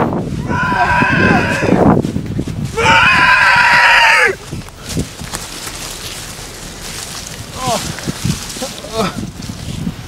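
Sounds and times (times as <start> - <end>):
person screaming: 0.4 - 1.8, 2.8 - 4.4.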